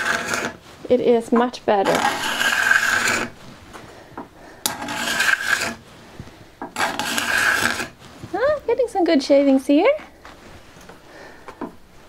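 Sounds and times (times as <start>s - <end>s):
card scraper rasping on wood: 0.0s - 0.6s, 1.8s - 3.4s, 4.6s - 5.8s, 6.7s - 8.0s.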